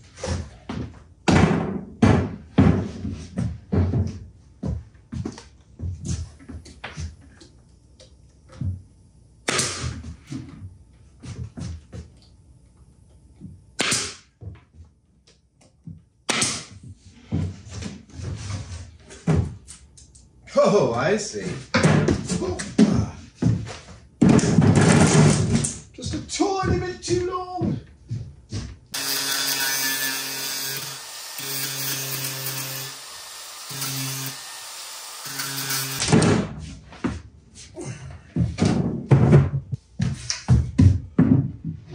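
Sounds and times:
power tool motor whine: 0:29.0 - 0:36.0.

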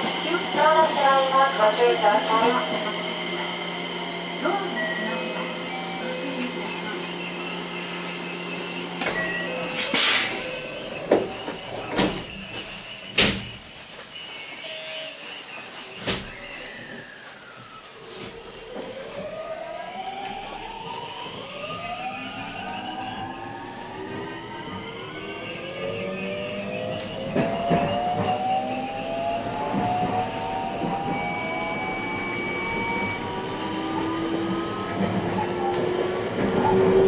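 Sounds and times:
steady high tone: 0:00.0 - 0:13.1, 0:16.7 - 0:36.4
electric train motors whining: 0:00.0 - 0:13.2, 0:16.6 - 0:37.0
train car rumble: 0:00.0 - 0:37.0.

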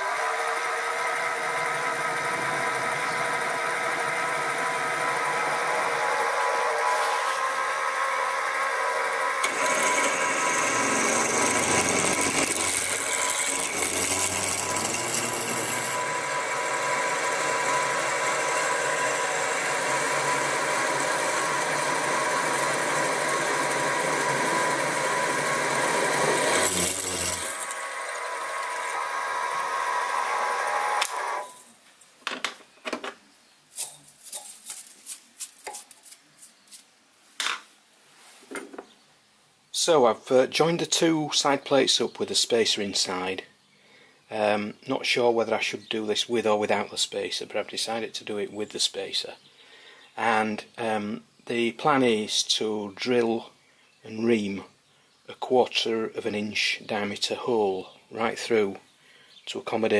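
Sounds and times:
drill bit cutting metal: 0:00.0 - 0:31.6
mill machine whine: 0:00.0 - 0:31.7.

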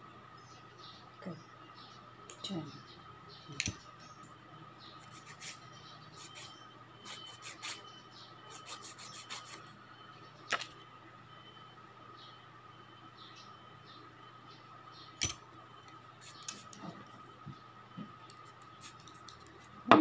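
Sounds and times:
nail file rasping on fingernail: 0:05.0 - 0:05.6, 0:07.1 - 0:07.8, 0:08.5 - 0:09.6
sharp click: 0:15.2 - 0:15.4.

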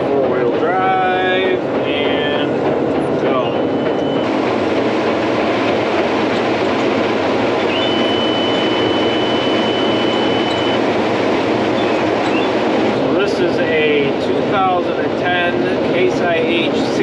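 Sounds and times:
combine harvester chopping corn: 0:04.2 - 0:09.8
thin high tone: 0:07.7 - 0:10.8.

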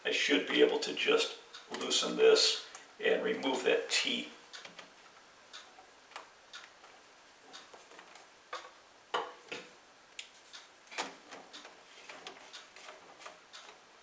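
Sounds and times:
plastic drain pipe clicks and knocks: 0:09.1 - 0:09.7.

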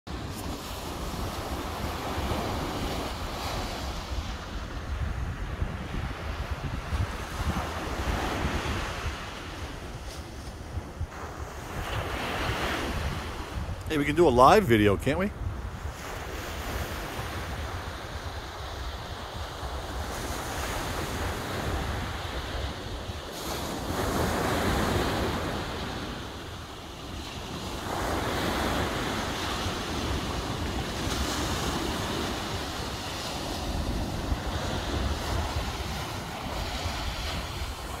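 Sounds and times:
surf washing onto beach: 0:00.1 - 0:38.0
wind buffeting microphone: 0:00.1 - 0:38.0.

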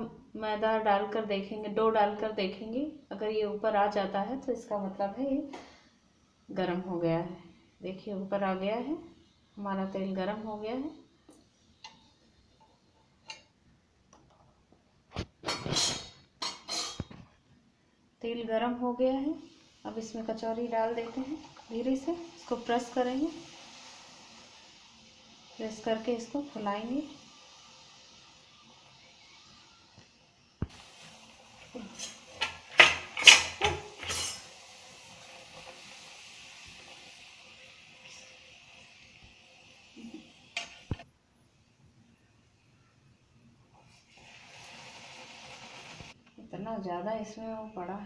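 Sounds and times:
oil sizzling: 0:18.2 - 0:41.8, 0:43.7 - 0:46.2
metal spoon clinking and rattling: 0:33.2 - 0:34.4.

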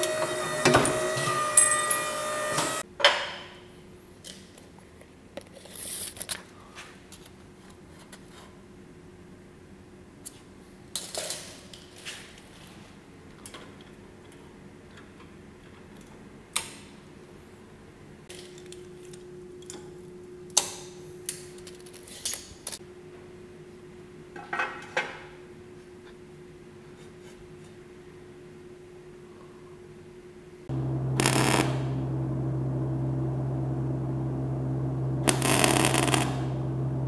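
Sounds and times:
faint steady hum: 0:27.8 - 0:37.0.

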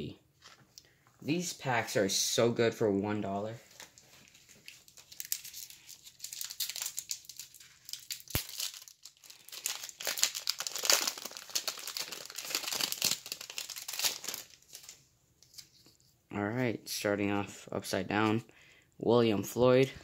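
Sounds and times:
foil wrapper crinkling and tearing: 0:03.8 - 0:15.6.

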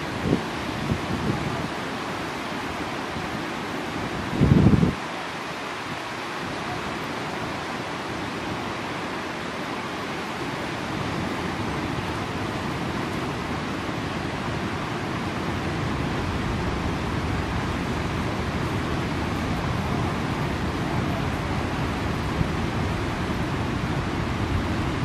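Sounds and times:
wind on microphone: 0:00.0 - 0:01.9, 0:03.1 - 0:05.1, 0:10.8 - 0:25.0
fast-flowing river rushing: 0:00.0 - 0:25.0.

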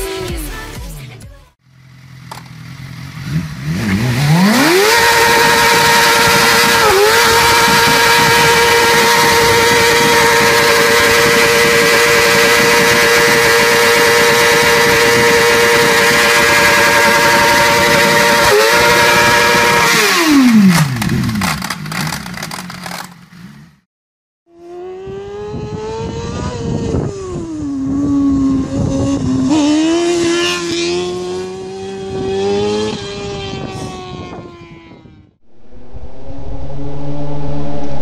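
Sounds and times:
motorcycle engine revving high: 0:01.7 - 0:23.8, 0:24.5 - 0:38.0
exhaust cracks: 0:03.7 - 0:23.4.

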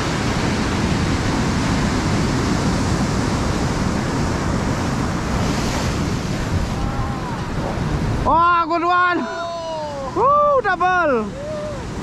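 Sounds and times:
wind buffeting microphone: 0:00.0 - 0:08.6
ocean surf breaking on rocks: 0:00.0 - 0:12.0.

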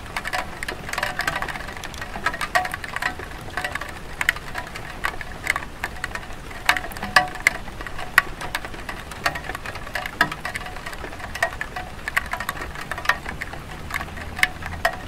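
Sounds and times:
rain dripping on tile roof: 0:00.0 - 0:15.0.

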